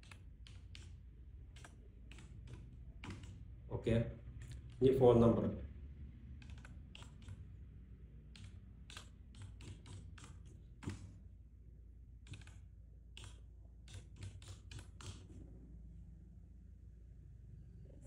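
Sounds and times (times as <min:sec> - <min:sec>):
typing on computer keyboard: 0:00.0 - 0:05.4, 0:06.2 - 0:11.3, 0:12.2 - 0:15.4.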